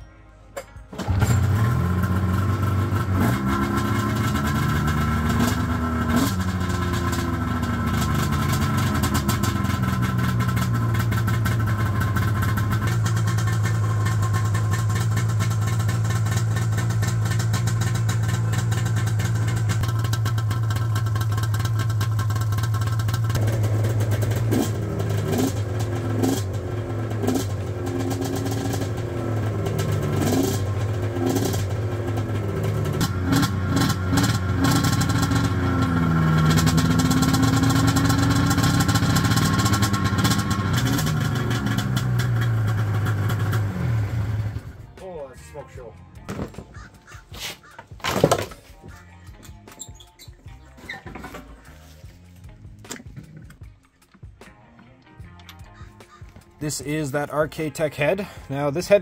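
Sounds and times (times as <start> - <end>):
snowmobile engine revving: 1.0 - 44.8.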